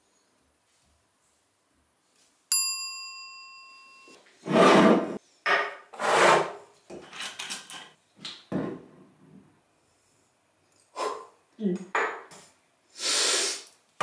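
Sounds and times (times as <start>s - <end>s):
sharp metallic clink: 2.5s - 4.2s
metal objects sliding on wood: 4.2s - 5.2s, 5.9s - 7.3s.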